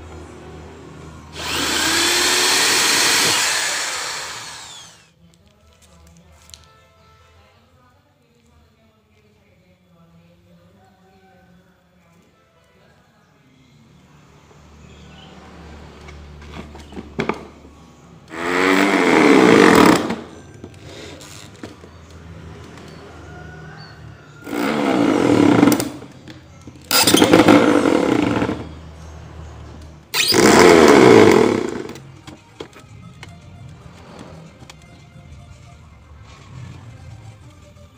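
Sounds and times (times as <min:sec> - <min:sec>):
electric drill boring into wood: 0:01.3 - 0:05.1, 0:18.3 - 0:20.3, 0:24.4 - 0:26.0, 0:26.9 - 0:28.7, 0:30.2 - 0:32.0.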